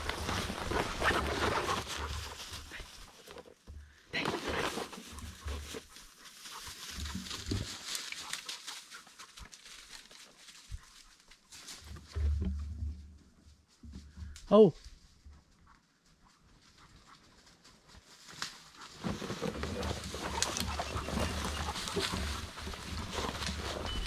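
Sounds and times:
twigs rustling and snapping: 0:05.0 - 0:11.8, 0:19.5 - 0:24.0.

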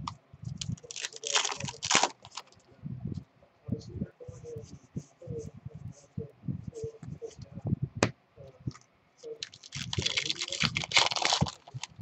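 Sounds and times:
foil wrapper tearing and crinkling: 0:00.7 - 0:02.5, 0:09.4 - 0:11.9.

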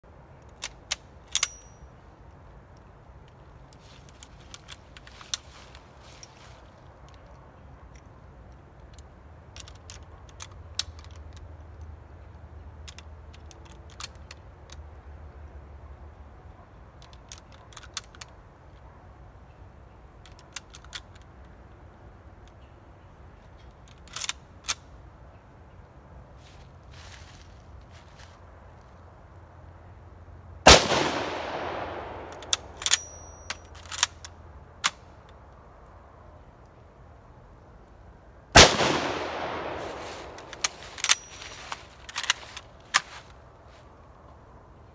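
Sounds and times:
rifle loading metallic clicks: 0:00.3 - 0:14.9, 0:16.9 - 0:18.8, 0:19.5 - 0:25.0, 0:30.7 - 0:35.5, 0:38.6 - 0:43.4
rifle shot with echo: 0:30.7 - 0:32.8, 0:38.6 - 0:41.3.

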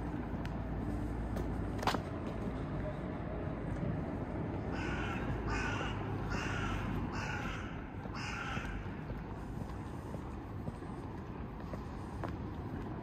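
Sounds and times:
city background hum: 0:00.0 - 0:13.0
crow cawing: 0:04.7 - 0:08.9.

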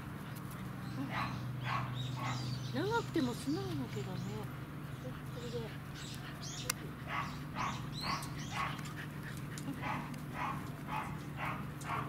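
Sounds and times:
dog panting: 0:04.2 - 0:12.0.

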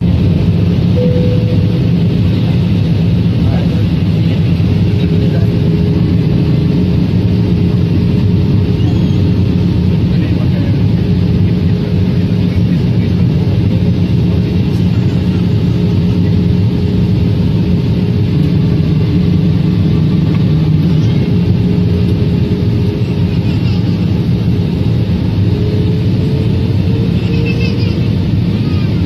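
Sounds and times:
jet airliner cabin drone: 0:00.0 - 0:29.0.

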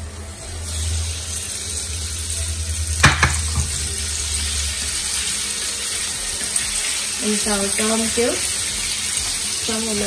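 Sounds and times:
shrimp sizzling in hot oil: 0:00.0 - 0:10.0
knocks against frying pan: 0:03.0 - 0:03.8.

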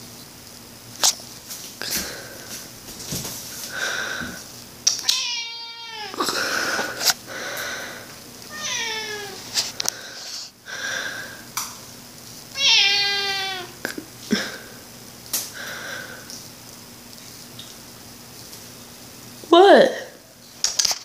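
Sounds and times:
cat meowing: 0:05.0 - 0:06.2, 0:08.5 - 0:09.4, 0:12.5 - 0:13.8.

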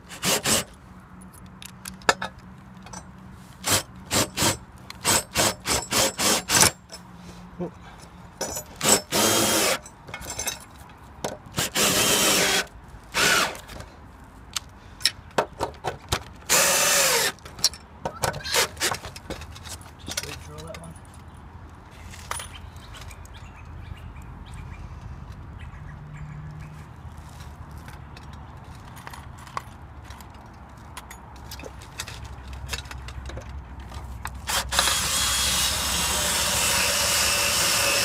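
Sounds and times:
cordless drill driving screws into metal: 0:03.6 - 0:06.8, 0:08.7 - 0:09.8, 0:11.6 - 0:13.7, 0:16.5 - 0:17.5, 0:34.4 - 0:38.0.

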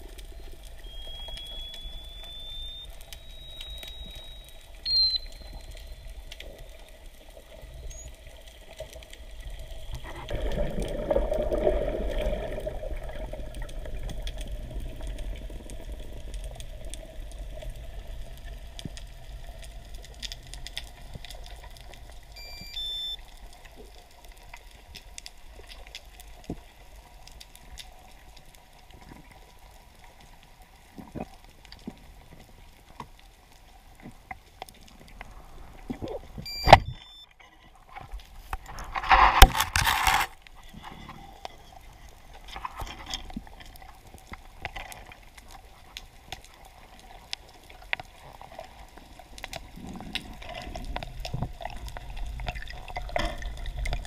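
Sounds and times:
low underwater rumble: 0:00.0 - 0:22.8
faint clicks and crackles: 0:00.0 - 0:54.0
short high beeps: 0:00.8 - 0:06.0, 0:22.4 - 0:23.2, 0:36.4 - 0:37.3.

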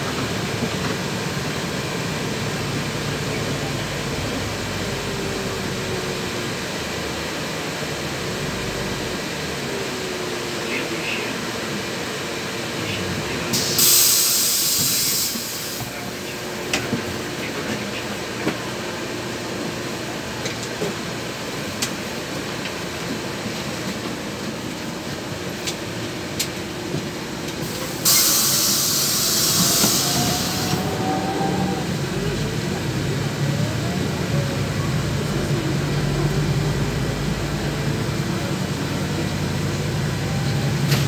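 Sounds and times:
bus engine drone: 0:00.0 - 0:41.0
compressed air hiss: 0:13.6 - 0:15.8, 0:27.7 - 0:30.8
rising engine whine: 0:29.3 - 0:41.0.

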